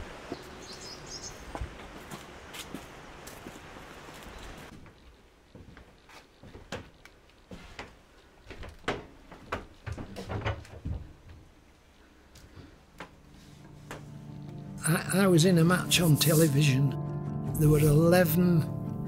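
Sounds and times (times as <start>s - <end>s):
knocks and clicks of handling tools: 8.6s - 11.1s.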